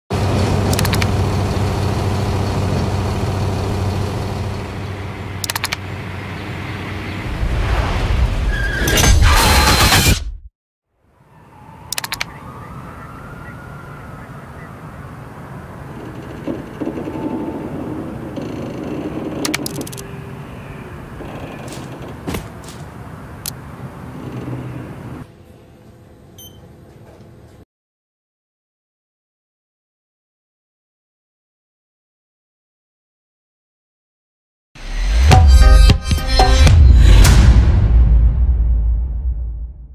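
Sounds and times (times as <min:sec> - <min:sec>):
truck engine drone: 0:00.1 - 0:08.0, 0:11.0 - 0:26.4
tyre and road noise: 0:00.1 - 0:09.9, 0:11.0 - 0:25.5
sharp metallic clicks: 0:00.7 - 0:01.2, 0:05.4 - 0:05.8, 0:11.9 - 0:12.4, 0:19.3 - 0:20.1
short sharp clicks: 0:05.4 - 0:05.8, 0:11.9 - 0:12.3
loud rushing noise: 0:07.2 - 0:10.0.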